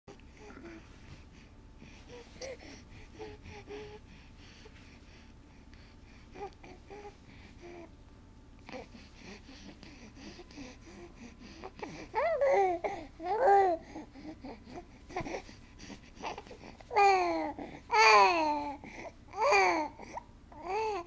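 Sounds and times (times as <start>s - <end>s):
baby cooing and babbling: 11.7s - 15.4s, 16.2s - 21.0s.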